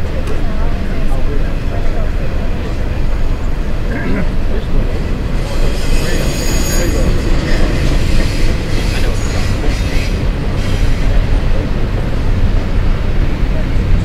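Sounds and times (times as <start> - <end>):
freight train rumbling: 0.0 - 14.0
wheel squeal: 5.3 - 11.2.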